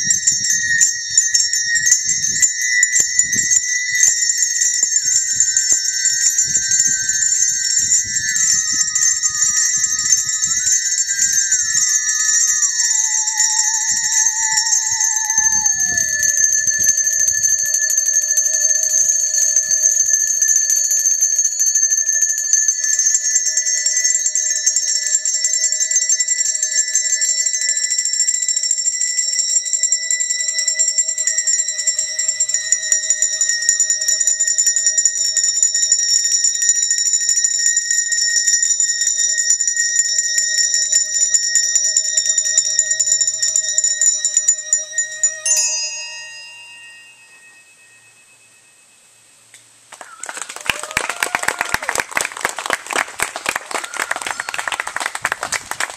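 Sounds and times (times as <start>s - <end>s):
bowed musical saw: 0.0s - 27.9s, 37.5s - 50.2s
handbells ringing rapidly: 0.0s - 49.4s, 50.8s - 55.9s.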